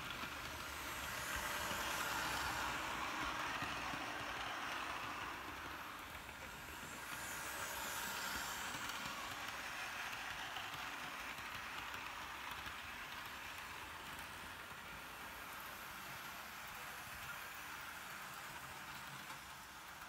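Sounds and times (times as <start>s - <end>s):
model train whirring on track: 0.0s - 20.0s.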